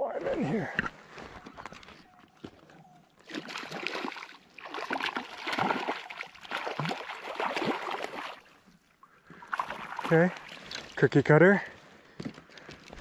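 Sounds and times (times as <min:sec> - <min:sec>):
water splashing: 0:03.2 - 0:11.1.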